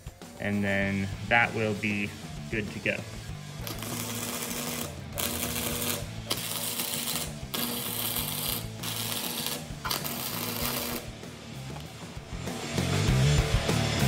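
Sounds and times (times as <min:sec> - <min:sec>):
welding arc crackling: 0:03.6 - 0:11.8.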